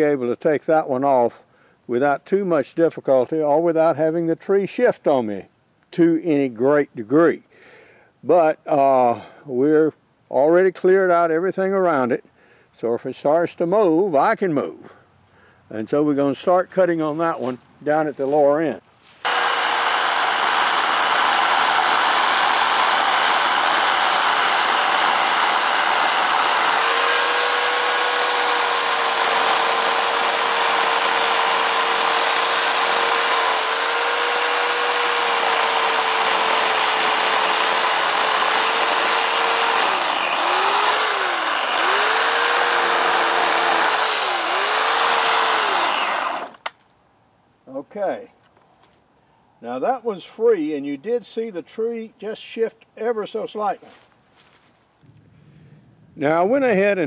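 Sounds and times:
electric chainsaw cutting wood: 0:19.2 - 0:46.7.

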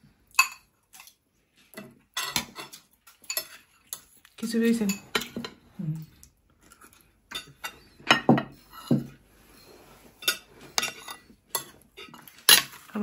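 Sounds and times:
cutlery clinking on plates: 0:00.3 - 0:04.2, 0:04.8 - 0:05.6, 0:07.3 - 0:12.9.

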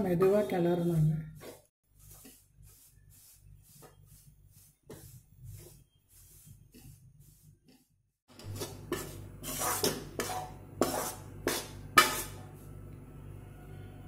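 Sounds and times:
metal spoon scraping metal pan: 0:08.3 - 0:12.5.

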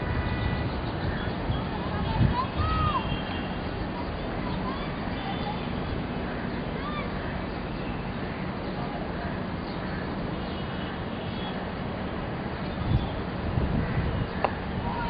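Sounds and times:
wind thumps on microphone: 0:00.0 - 0:03.0, 0:12.8 - 0:15.0
faint distant voices: 0:00.2 - 0:11.6.

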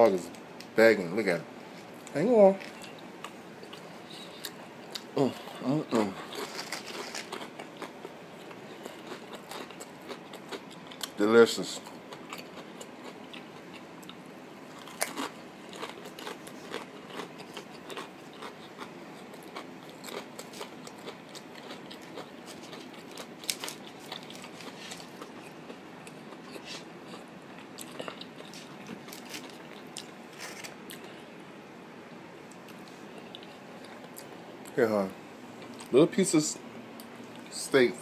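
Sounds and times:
person chewing crunchy food: 0:02.7 - 0:11.2, 0:11.8 - 0:31.3.

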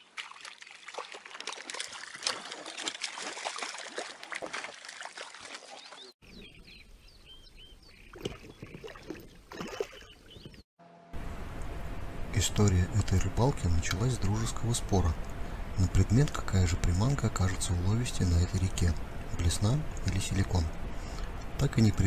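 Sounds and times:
water splashing: 0:00.0 - 0:06.2, 0:08.1 - 0:10.5
birds chirping: 0:05.7 - 0:10.6.

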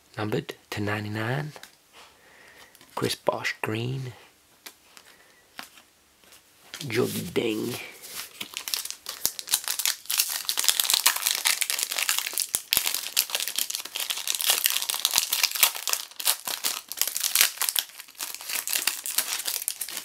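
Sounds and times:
foil wrapper tearing and crinkling: 0:08.2 - 0:20.0.

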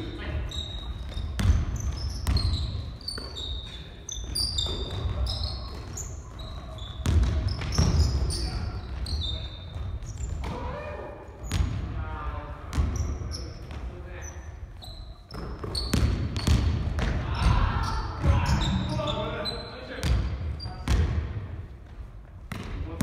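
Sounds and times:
sneakers squeaking: 0:00.0 - 0:12.0, 0:12.7 - 0:23.0
basketball bouncing on wooden floor: 0:00.9 - 0:03.4, 0:07.0 - 0:08.2, 0:15.3 - 0:18.8, 0:20.0 - 0:21.3, 0:22.5 - 0:22.8.

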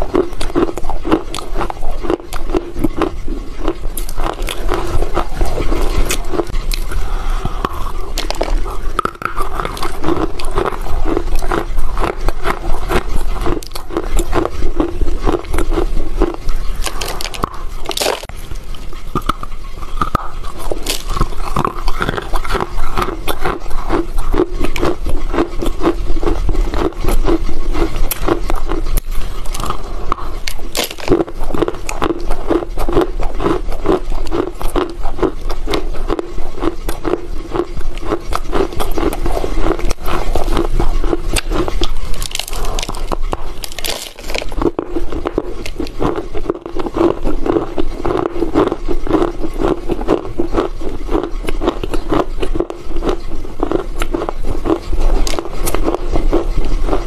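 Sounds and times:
person chewing crunchy clay: 0:00.0 - 0:57.0.

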